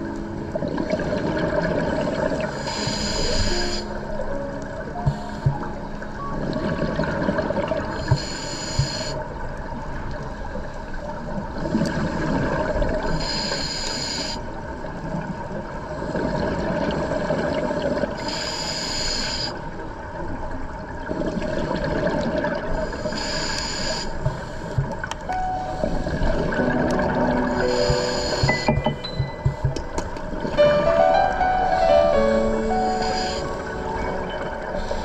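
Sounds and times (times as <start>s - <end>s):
regulator inhale hiss: 2.5s - 4.0s, 8.0s - 9.2s, 13.2s - 14.6s, 18.2s - 19.6s, 22.9s - 25.0s, 27.5s - 28.8s, 31.7s - 35.0s.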